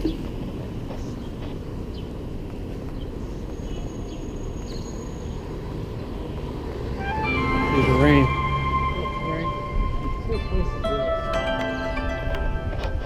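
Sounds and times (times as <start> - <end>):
city street rumble: 0.0 - 13.0.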